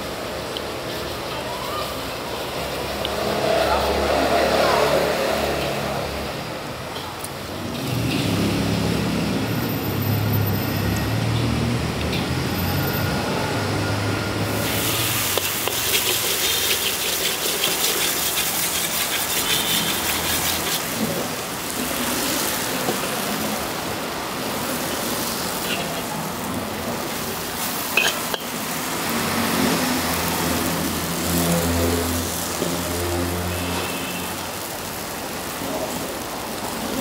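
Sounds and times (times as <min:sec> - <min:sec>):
food sizzling in a wok: 0:00.0 - 0:37.0
low traffic hum: 0:00.0 - 0:37.0
metal spatula clicking and scraping: 0:15.3 - 0:21.2, 0:28.0 - 0:28.5.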